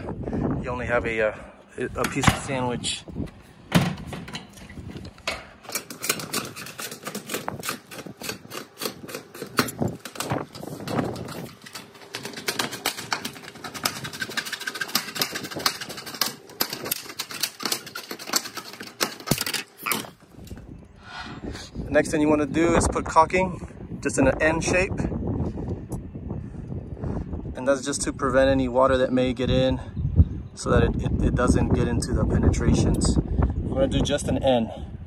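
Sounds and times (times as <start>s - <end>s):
metallic clicks and knocks: 3.8s - 20.2s.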